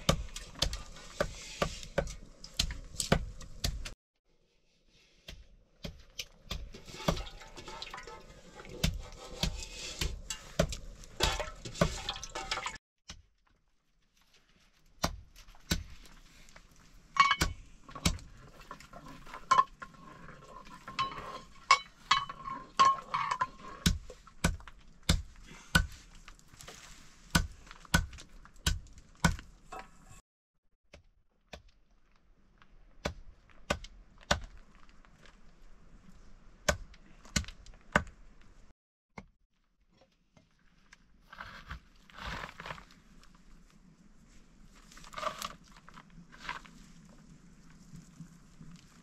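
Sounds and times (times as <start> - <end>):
metal pots and utensils clinking: 6.8 - 12.8.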